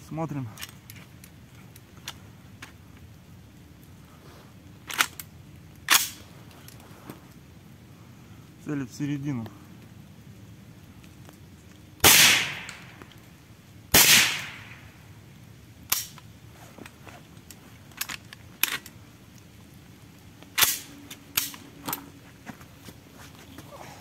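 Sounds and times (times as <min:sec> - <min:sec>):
shotgun shots echoing: 0:12.0 - 0:13.0, 0:13.9 - 0:14.9.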